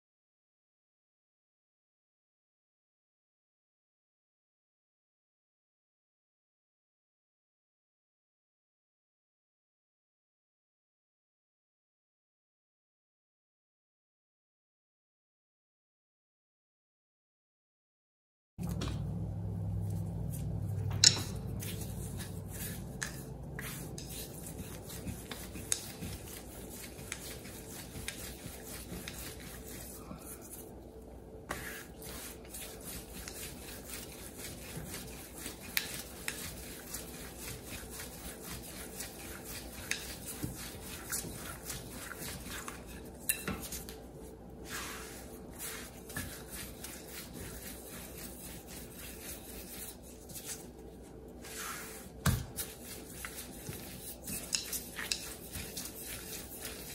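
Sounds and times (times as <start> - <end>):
rolling pin rolling dough: 19.7 - 30.8, 31.4 - 56.9.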